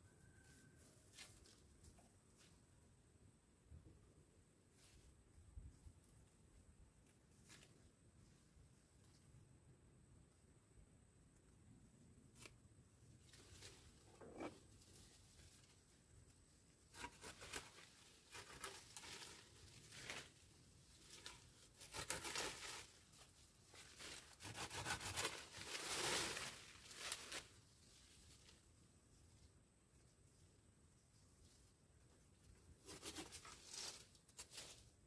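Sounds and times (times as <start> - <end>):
leafy branches rustling: 13.2 - 31.9, 32.8 - 35.0.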